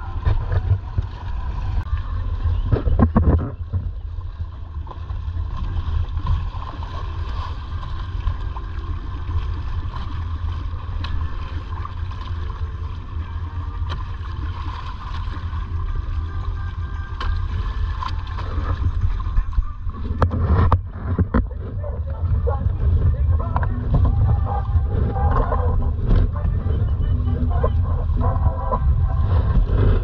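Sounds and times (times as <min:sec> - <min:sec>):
wind buffeting microphone: 0:00.0 - 0:04.6, 0:18.3 - 0:30.0
water gurgling along hull: 0:00.0 - 0:30.0.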